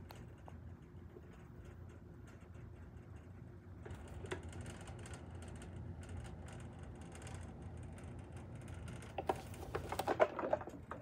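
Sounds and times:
plastic toy car clicking and rattling: 0:09.0 - 0:11.0.

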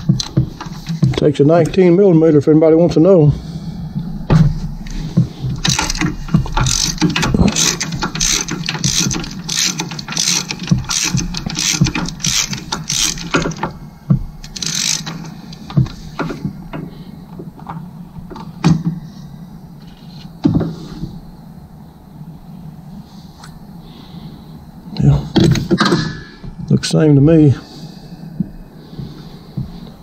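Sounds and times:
ratchet wrench clicking: 0:05.6 - 0:13.7, 0:14.4 - 0:15.3.

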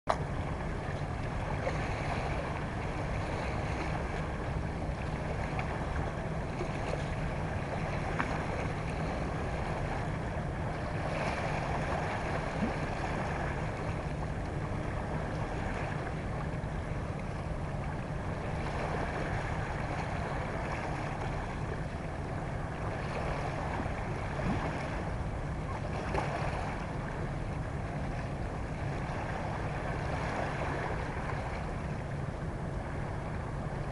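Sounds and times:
steady low rumble: 0:00.1 - 0:33.9.

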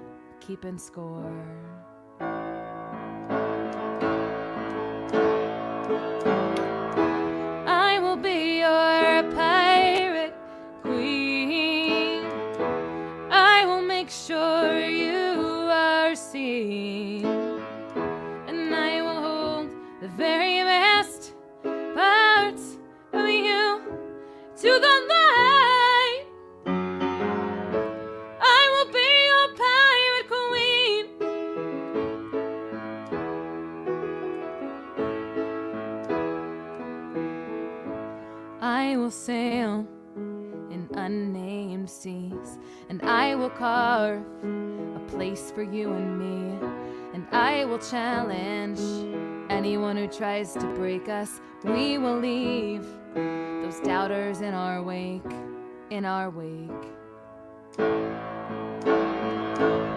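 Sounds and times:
keyboard chords: 0:00.0 - 0:41.4, 0:42.4 - 0:59.9
woman singing: 0:00.4 - 0:01.9, 0:07.6 - 0:12.5, 0:13.2 - 0:17.6, 0:18.4 - 0:24.0, 0:24.6 - 0:26.3, 0:28.4 - 0:31.2, 0:38.6 - 0:39.9, 0:40.7 - 0:44.4, 0:45.0 - 0:53.0, 0:53.6 - 0:57.0.

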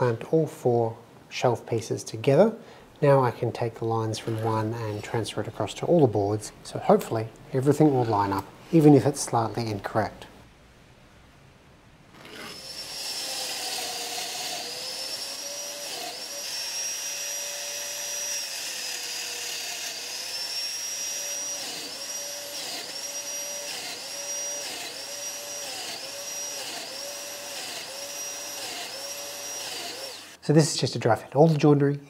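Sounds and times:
joiner motor whine: 0:12.2 - 0:30.4.

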